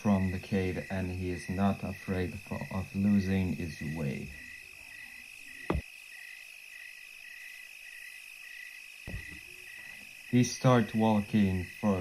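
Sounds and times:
crickets chirping: 0.0 - 12.0
sharp thump: 5.7 - 5.9, 9.1 - 9.4.

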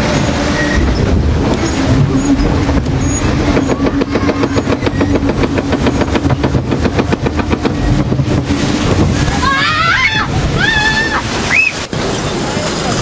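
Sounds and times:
rapid even clacking of conveyor: 0.0 - 9.4
steady motor hum: 0.0 - 11.9.

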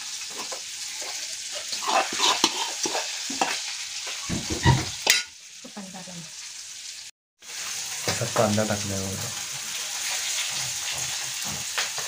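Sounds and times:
spoon scraping and tapping: 0.3 - 3.6.

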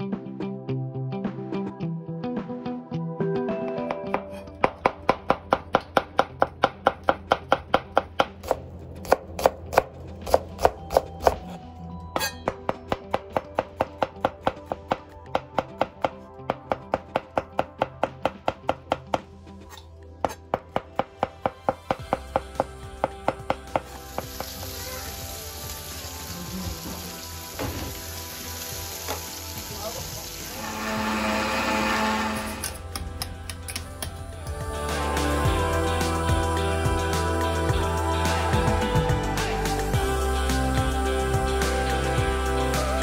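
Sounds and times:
steaks sizzling in a frying pan: 24.0 - 30.5.

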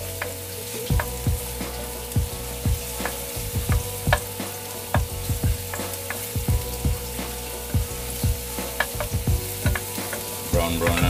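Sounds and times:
garlic and onion sizzling in pan: 0.0 - 11.0
wooden spatula knocking pan: 2.2 - 7.1, 7.7 - 11.0.

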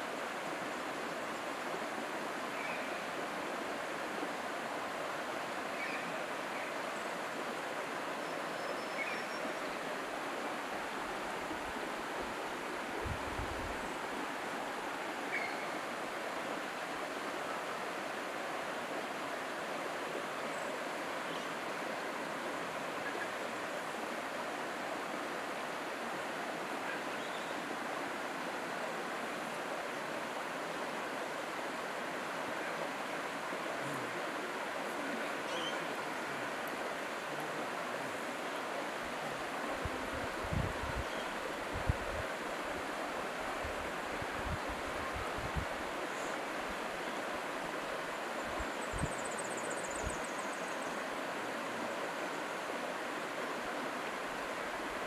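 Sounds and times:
creek running over rocks: 0.0 - 55.0.

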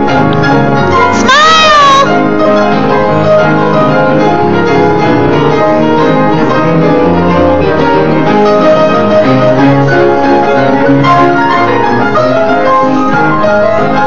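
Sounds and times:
ragtime upright piano: 0.0 - 1.3, 2.0 - 14.0.

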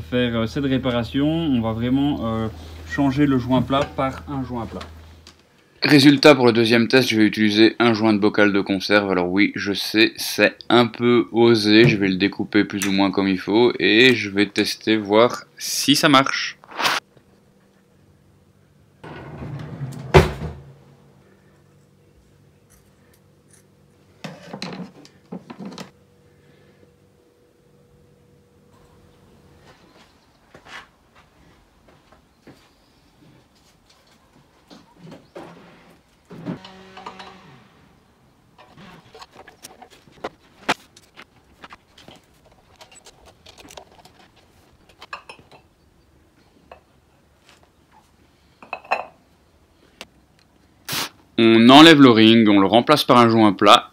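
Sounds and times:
handling noise: 38.5 - 45.6.

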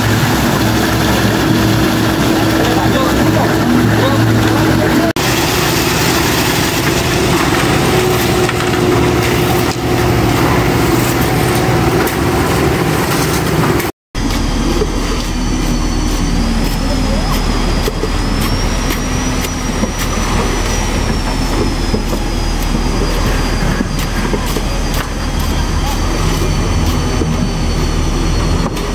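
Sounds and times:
concrete pouring down chute: 0.0 - 13.6
truck engine running: 0.0 - 28.9
workers' voices: 0.5 - 28.9.

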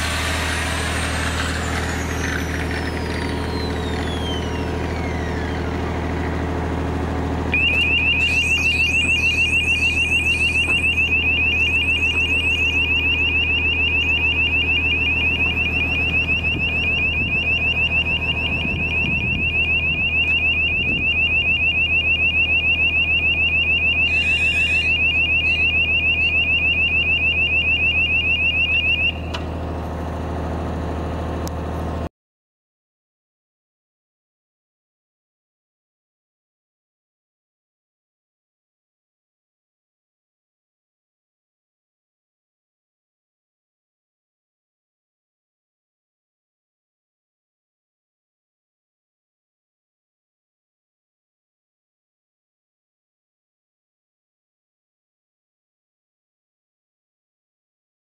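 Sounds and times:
diesel generator running: 0.0 - 32.1
high-pitched warning beeper: 7.5 - 29.4.

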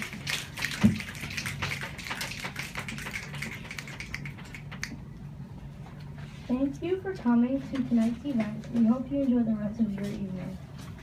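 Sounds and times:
audience snapping fingers: 0.0 - 5.0.

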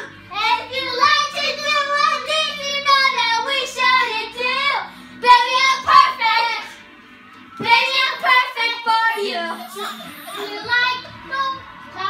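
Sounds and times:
girls singing together: 5.2 - 6.8.

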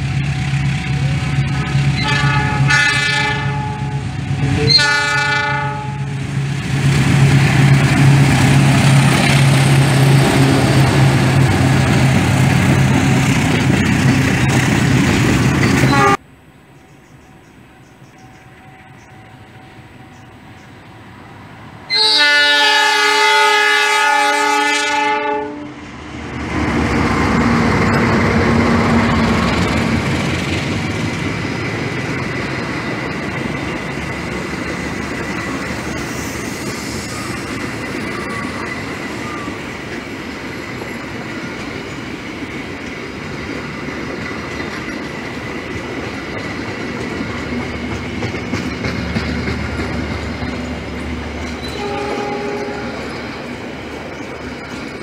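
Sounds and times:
train rolling past: 0.0 - 55.0
locomotive air horn: 1.8 - 6.2, 15.9 - 16.2, 21.9 - 25.8, 51.7 - 53.1.

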